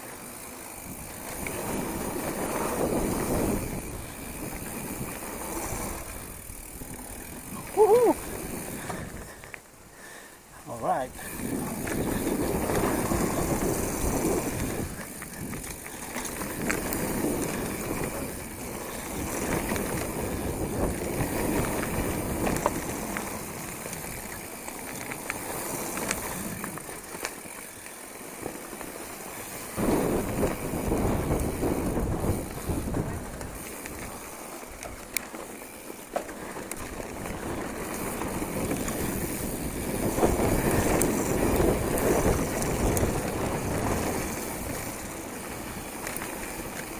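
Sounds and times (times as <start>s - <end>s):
tyres rumbling over loose dirt: 0.0s - 9.8s, 10.7s - 46.9s
bike rattling clicks: 0.0s - 10.2s, 10.8s - 46.9s
wind on microphone: 29.8s - 34.1s.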